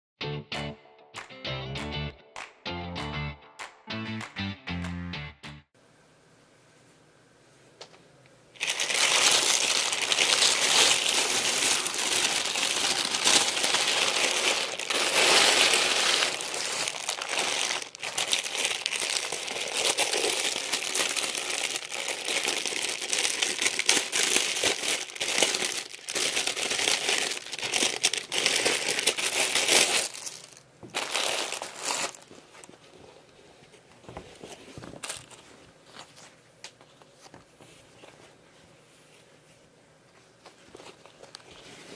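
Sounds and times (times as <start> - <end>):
plastic packaging crinkling: 8.6 - 32.9, 34.3 - 36.3.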